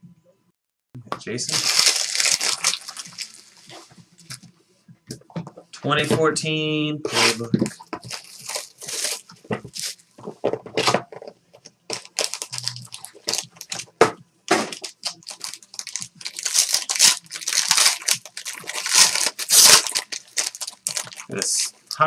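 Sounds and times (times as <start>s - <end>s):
plastic wrappers crinkling and tearing: 1.4s - 4.4s, 7.6s - 10.1s, 11.9s - 14.0s, 14.6s - 22.0s.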